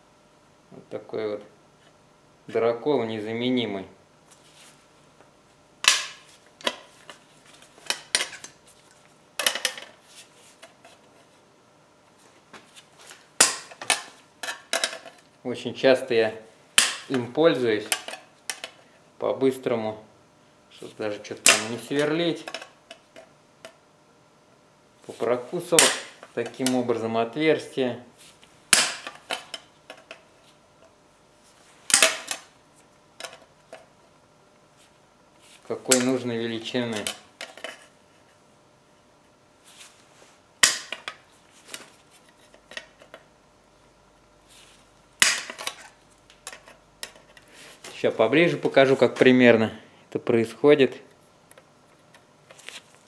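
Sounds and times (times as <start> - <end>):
hole punch cracking through steel: 45.2 - 45.8.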